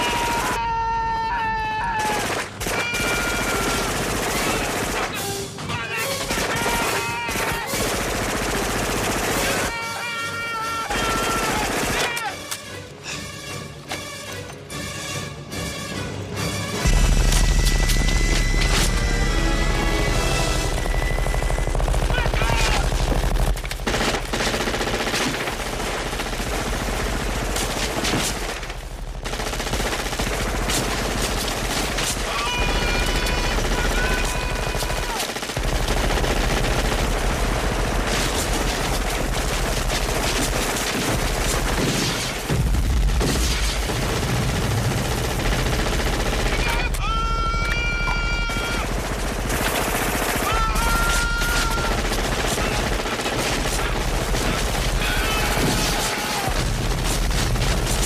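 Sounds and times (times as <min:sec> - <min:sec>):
automatic gunfire: 0:02.0 - 0:05.2, 0:06.2 - 0:09.7, 0:20.7 - 0:46.9, 0:48.4 - 0:58.0.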